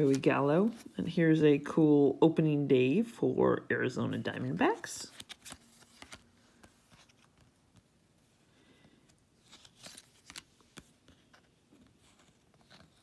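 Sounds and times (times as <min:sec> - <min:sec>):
paper trading cards rustling: 0:00.0 - 0:01.0, 0:04.8 - 0:13.0.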